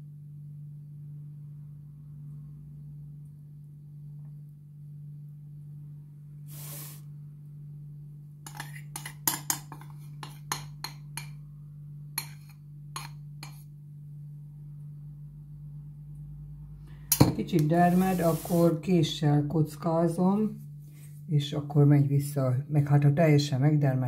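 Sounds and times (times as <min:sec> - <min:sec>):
steady low hum: 0:00.0 - 0:24.0
short soft hiss: 0:06.4 - 0:07.2
metal spoon scraping glass bowl: 0:08.5 - 0:11.3, 0:12.2 - 0:13.7.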